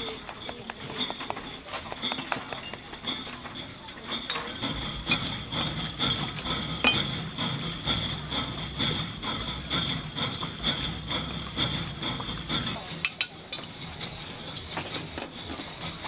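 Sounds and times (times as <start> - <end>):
hard objects knocking and clinking: 0.0 - 16.0.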